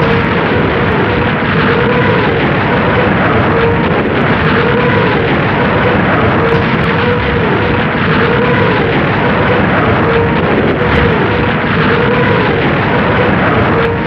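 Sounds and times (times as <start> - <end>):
rocket motors roaring: 0.0 - 14.0
wavering howl: 0.0 - 14.0.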